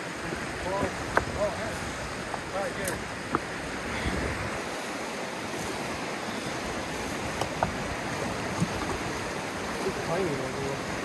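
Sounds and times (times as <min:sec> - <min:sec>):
river rapids rushing: 0:00.0 - 0:11.0.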